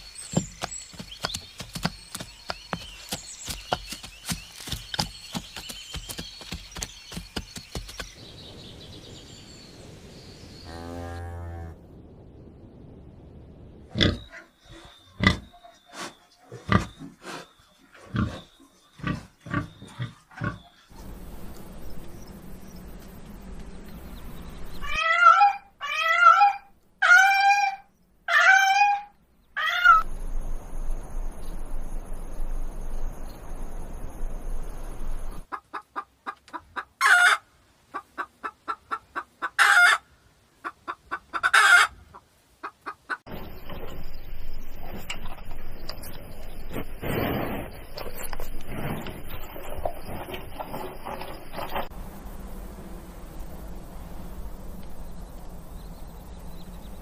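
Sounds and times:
hens clucking: 0:35.5 - 0:40.0, 0:40.6 - 0:43.5.

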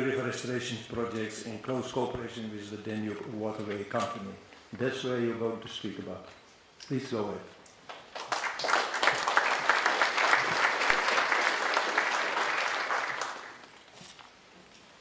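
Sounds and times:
audience applause: 0:07.9 - 0:13.7.

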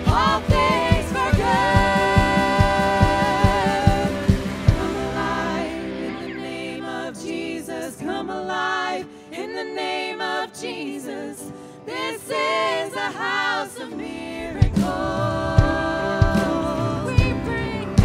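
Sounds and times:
drums: 0:00.0 - 0:06.3, 0:14.4 - 0:18.0
bass: 0:00.0 - 0:07.1, 0:14.4 - 0:18.0
woman singing: 0:00.0 - 0:18.0.

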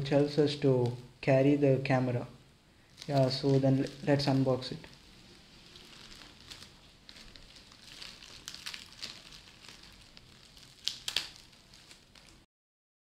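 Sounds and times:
plastic wrap crinkling: 0:02.8 - 0:12.5.

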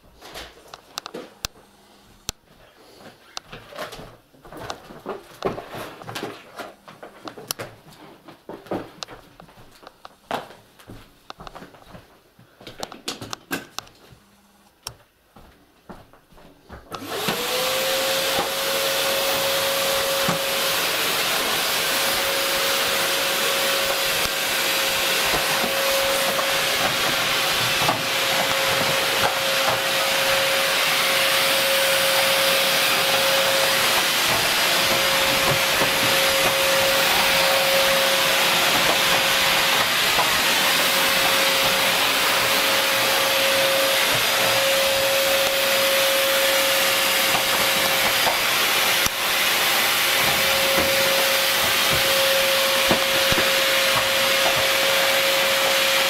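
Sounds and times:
vacuum cleaner motor whine: 0:16.9 - 0:56.0.

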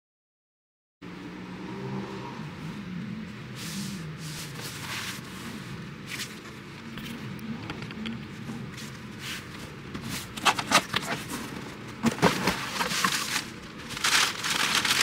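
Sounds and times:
low steady drone: 0:01.0 - 0:10.0
cardboard box rustling: 0:08.3 - 0:15.0.

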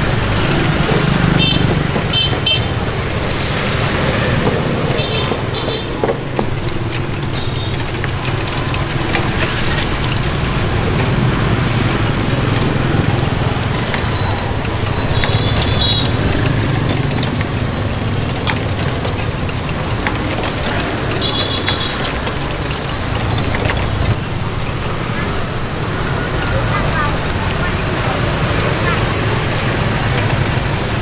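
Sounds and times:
motorbikes passing: 0:00.0 - 0:31.0.

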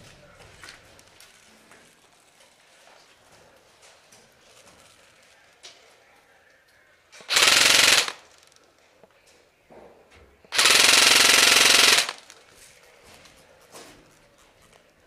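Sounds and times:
airsoft rifle bursts: 0:07.2 - 0:08.6, 0:10.5 - 0:12.5.

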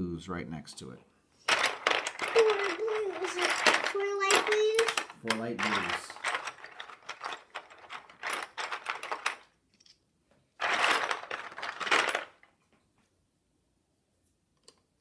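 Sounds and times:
plastic pieces clattering: 0:01.5 - 0:10.0, 0:10.6 - 0:12.6.

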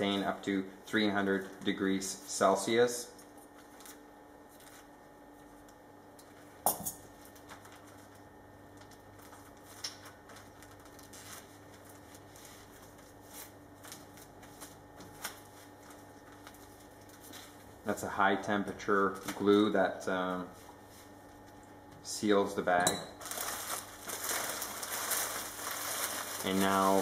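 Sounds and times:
faint steady hum: 0:00.0 - 0:27.0
plastic film crinkling: 0:03.4 - 0:05.0, 0:07.2 - 0:17.6, 0:23.2 - 0:27.0.

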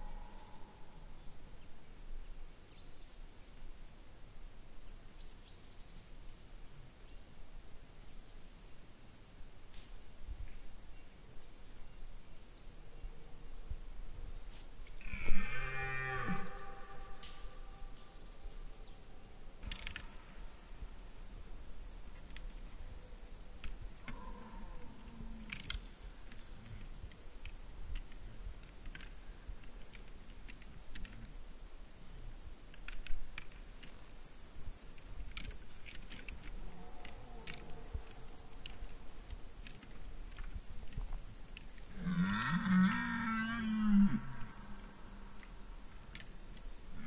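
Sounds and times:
twigs snapping and crackling: 0:25.4 - 0:31.2, 0:32.7 - 0:41.9.

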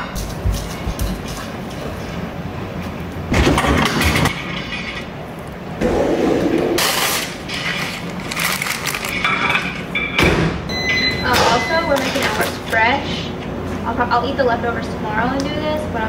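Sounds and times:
parchment paper crinkling: 0:07.5 - 0:09.2.

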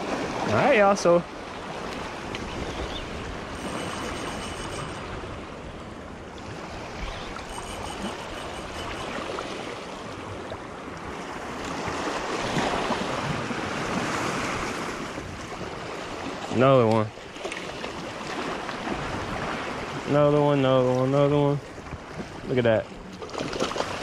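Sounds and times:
small waves splashing on rocks: 0:23.1 - 0:24.0.

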